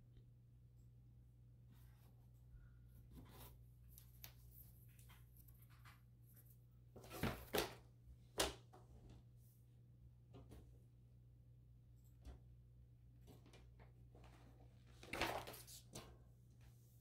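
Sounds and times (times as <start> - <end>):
picture frames rustling and scraping: 1.7 - 7.7.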